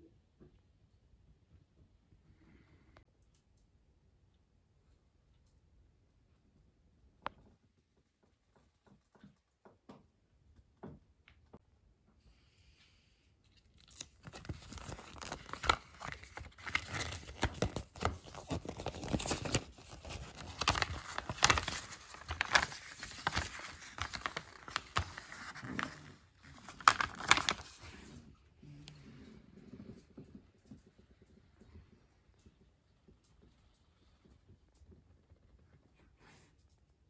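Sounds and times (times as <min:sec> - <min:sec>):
paper leaflet rustling: 0:13.8 - 0:28.0.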